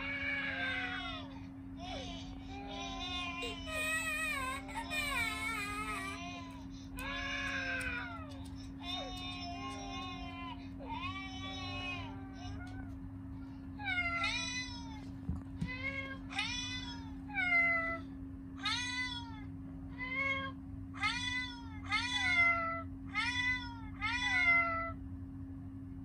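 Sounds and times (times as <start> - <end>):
steady low hum: 0.0 - 26.0
cat meowing: 7.0 - 12.9, 20.0 - 25.0.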